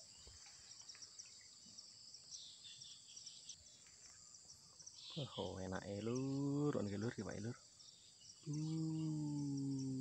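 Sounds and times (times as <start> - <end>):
soft bird chirps: 0.0 - 10.0
high-pitched insect chirring: 8.2 - 10.0.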